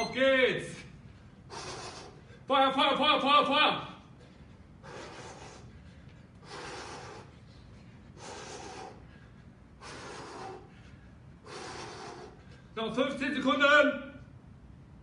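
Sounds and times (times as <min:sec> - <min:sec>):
man breathing hard: 0:01.1 - 0:02.5, 0:04.1 - 0:12.8.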